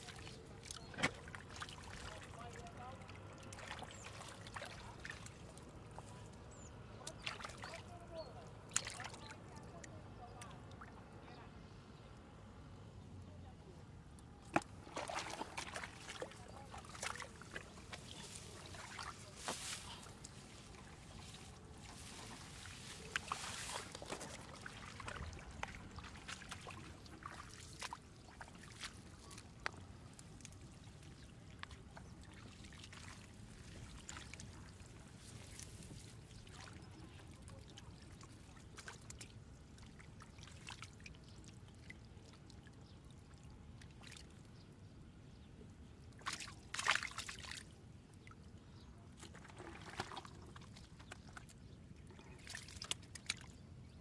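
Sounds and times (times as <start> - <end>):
hands splashing in muddy water: 8.7 - 9.2, 14.4 - 30.7, 46.2 - 47.7, 49.2 - 51.5, 52.3 - 53.6.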